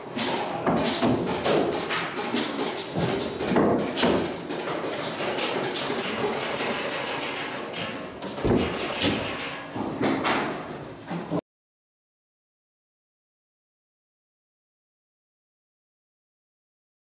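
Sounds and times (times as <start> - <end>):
rustling and clattering in cabinet: 0.0 - 11.4
heavy thud: 8.4 - 9.4.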